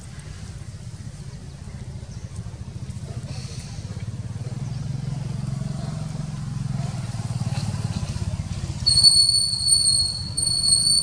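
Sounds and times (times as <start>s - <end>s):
high whistling tone: 8.9s - 11.0s.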